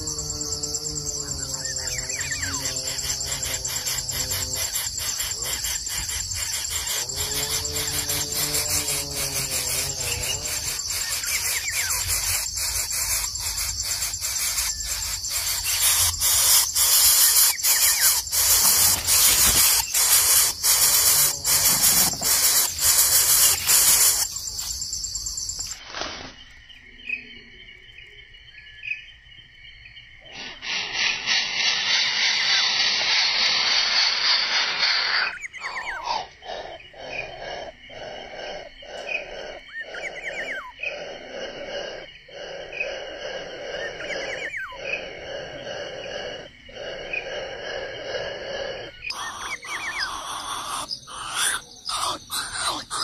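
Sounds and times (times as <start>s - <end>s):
high-pitched insect chorus: 0.0s - 53.0s.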